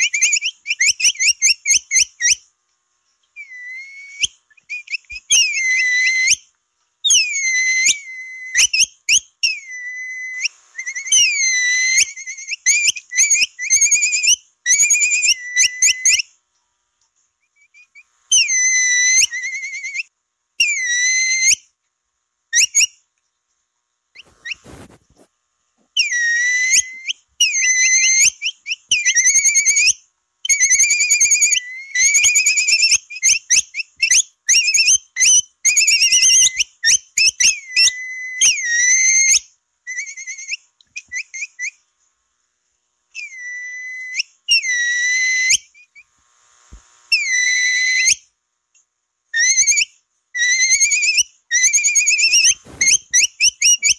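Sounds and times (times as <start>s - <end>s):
shrill whistled chirps: 3.4s - 6.5s, 7.1s - 16.3s, 17.5s - 21.6s, 26.0s - 41.8s, 43.1s - 46.1s, 47.1s - 48.3s, 49.4s - 53.9s.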